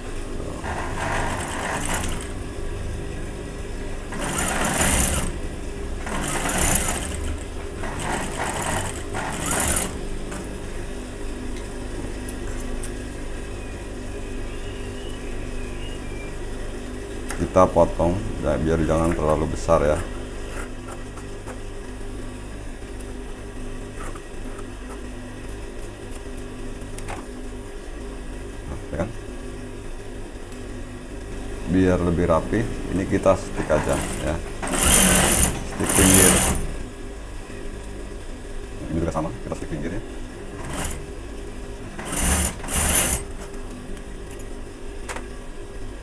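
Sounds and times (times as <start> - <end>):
sewing machine motor humming: 0.5 - 2.5, 4.0 - 10.7, 18.8 - 21.6, 33.5 - 36.8, 40.5 - 41.2, 41.8 - 43.6.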